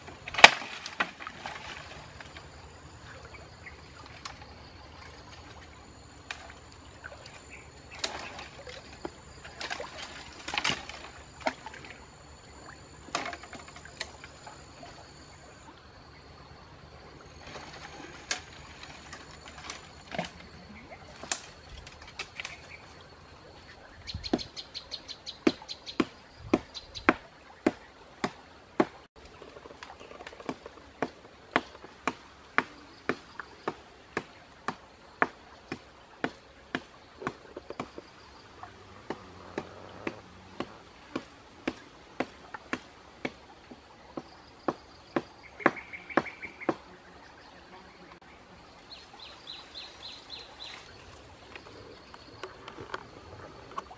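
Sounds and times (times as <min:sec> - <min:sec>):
branches cracking and rustling: 0:00.0 - 0:02.5, 0:06.2 - 0:12.0, 0:17.4 - 0:23.0
chopping strikes on wood: 0:25.4 - 0:29.0, 0:30.4 - 0:38.0, 0:39.0 - 0:43.4, 0:44.2 - 0:46.9.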